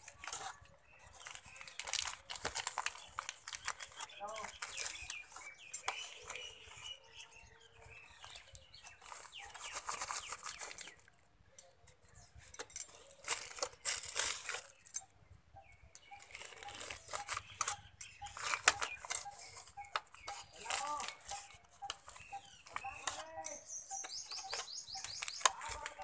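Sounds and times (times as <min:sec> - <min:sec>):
plastic and packet rustling: 0:00.0 - 0:11.2, 0:12.4 - 0:15.1, 0:16.0 - 0:26.0.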